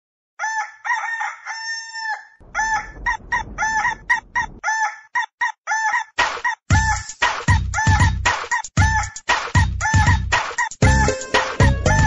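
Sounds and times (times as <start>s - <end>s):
rooster crowing and clucking: 0.4s - 6.1s
rough low noise: 2.4s - 4.6s.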